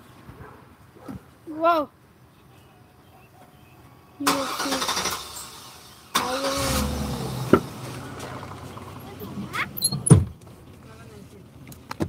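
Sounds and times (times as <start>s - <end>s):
sudden loud car noise: 5.2s - 10.4s.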